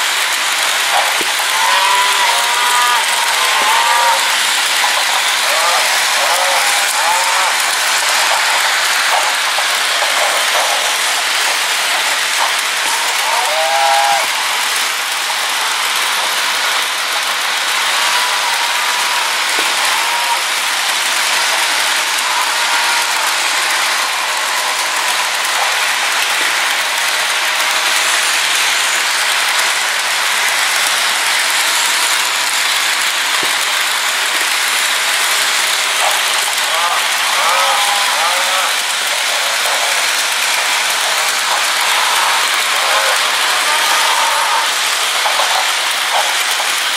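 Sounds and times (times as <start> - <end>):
model train wheels clattering: 0.0 - 46.9
rolling freight car hiss: 0.0 - 46.9
cow mooing: 1.6 - 4.4.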